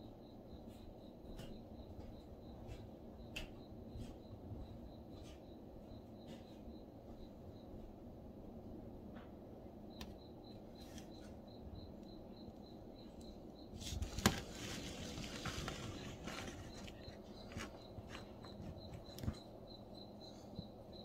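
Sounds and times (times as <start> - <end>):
cricket chirping: 0.0 - 21.0
rustling: 13.8 - 19.4.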